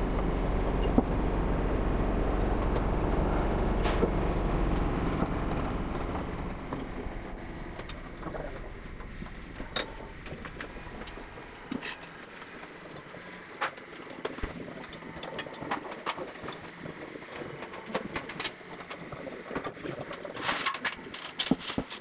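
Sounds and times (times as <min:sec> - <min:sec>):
lifting jacks mechanical hum: 0:00.0 - 0:16.0.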